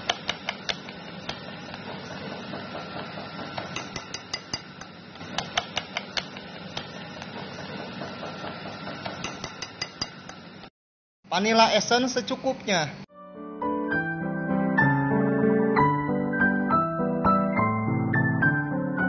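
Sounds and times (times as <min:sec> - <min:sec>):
whisk wires clinking on bowl: 0:03.6 - 0:06.5, 0:09.0 - 0:10.4.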